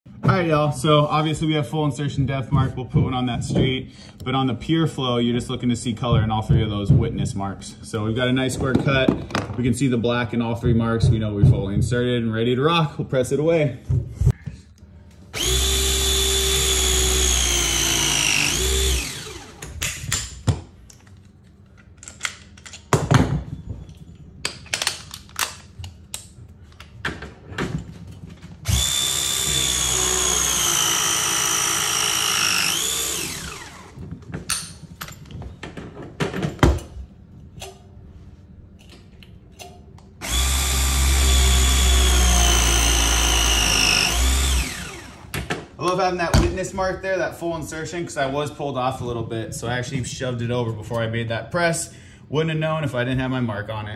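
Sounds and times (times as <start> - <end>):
press tool motor whine: 15.4 - 19.6, 28.7 - 34.0, 40.2 - 45.2.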